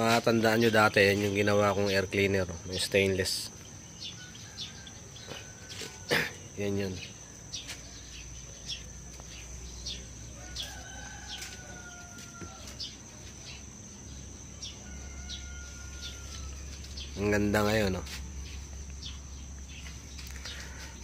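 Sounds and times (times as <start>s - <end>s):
high insect tone: 0.0s - 21.0s
small birds chirping: 0.0s - 21.0s
rooster crowing faintly: 10.3s - 13.1s, 14.6s - 16.9s.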